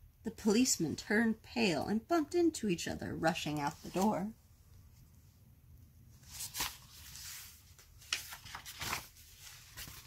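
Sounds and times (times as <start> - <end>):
book pages rustling: 6.2 - 10.0.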